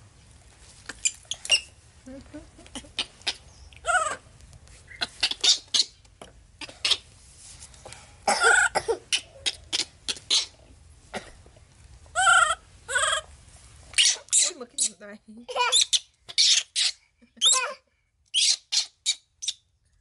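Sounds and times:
baby monkey squeaking: 1.0 - 1.8, 4.9 - 6.0, 8.6 - 10.6, 13.9 - 15.0, 15.6 - 17.7, 18.3 - 19.6
baby monkey squealing calls: 2.7 - 4.2, 4.9 - 6.0, 8.5 - 10.6, 12.2 - 13.3, 13.9 - 15.0, 15.6 - 19.6.

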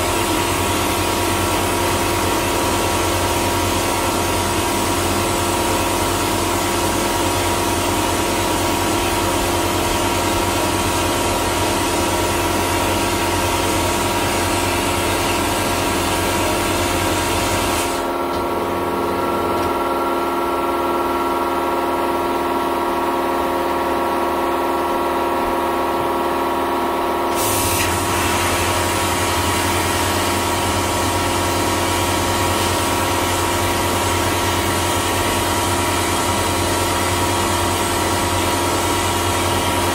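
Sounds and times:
machine hum: 0.0 - 39.9
blasting gun hissing: 27.3 - 28.9.

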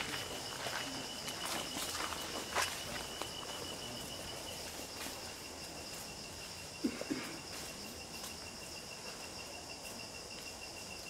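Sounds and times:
footfalls on dirt trail: 0.0 - 3.8
high-pitched insect calls: 0.0 - 11.0.

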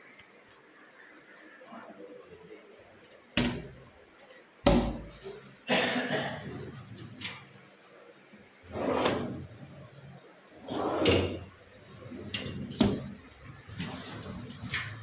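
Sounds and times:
metal drawer sliding on runners: 8.7 - 9.5, 10.6 - 13.1.

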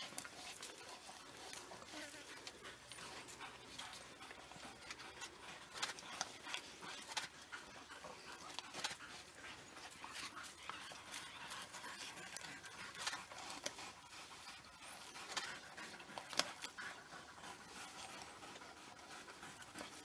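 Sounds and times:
snapping and tearing of carcass: 4.9 - 7.4, 8.3 - 9.4.

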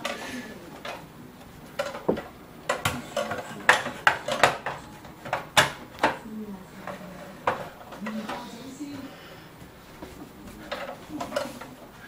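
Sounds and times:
plastic parts clicking and knocking: 1.7 - 6.2, 10.7 - 11.7.

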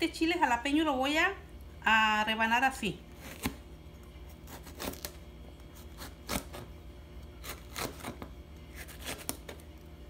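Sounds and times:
knife slicing pepper on cutting board: 7.4 - 9.6.

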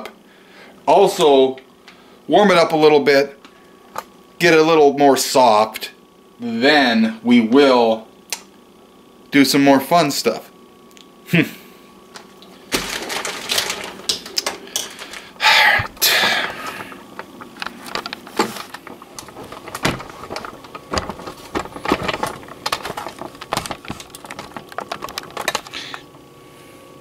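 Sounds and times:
camera handling rustles and knocks: 16.6 - 25.7.

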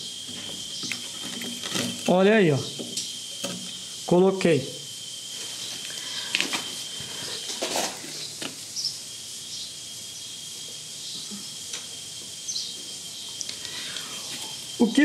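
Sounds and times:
plumbing parts clicking and rustling: 0.3 - 3.8.

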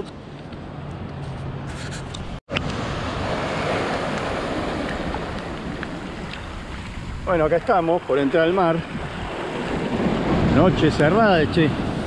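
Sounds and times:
wind noise on microphone: 1.6 - 7.9, 8.7 - 12.0
surf washing on a beach: 2.5 - 12.0.

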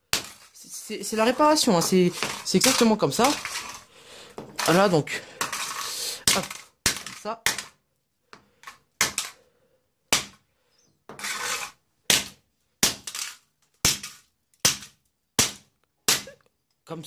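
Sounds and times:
rasping crunch: 0.1 - 7.7.

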